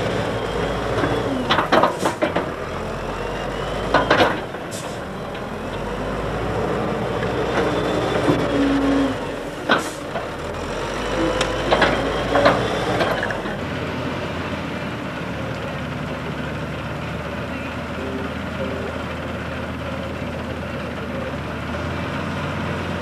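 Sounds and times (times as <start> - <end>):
diesel engine running: 0.0 - 23.0
metal clanks: 11.2 - 13.6
steady machine note: 17.6 - 20.6.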